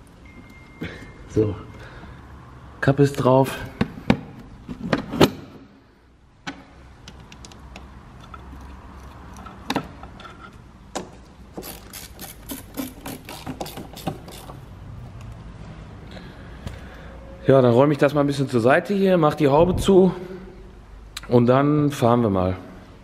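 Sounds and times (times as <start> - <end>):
socket wrench ratchet clicks: 11.6 - 14.6.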